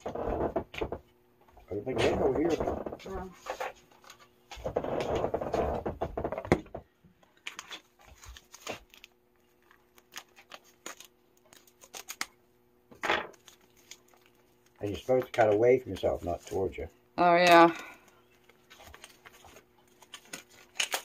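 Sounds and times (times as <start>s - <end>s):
rustling handling noise: 7.2s - 12.3s, 13.3s - 16.9s, 18.0s - 21.0s.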